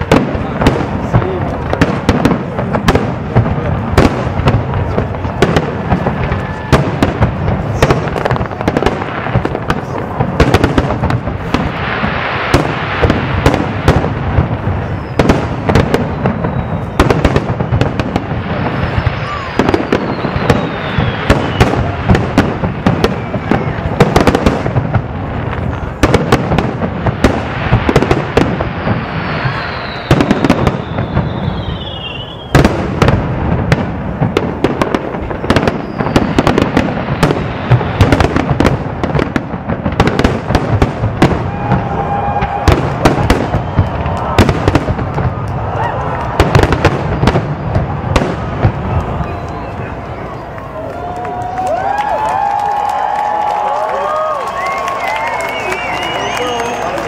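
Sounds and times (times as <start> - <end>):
fireworks bangs: 0.0 - 57.0
fireworks crackling: 0.0 - 57.0
falling whistles: 16.0 - 17.8, 18.8 - 21.8, 28.9 - 32.6, 35.4 - 36.4, 49.2 - 49.9, 54.4 - 57.0.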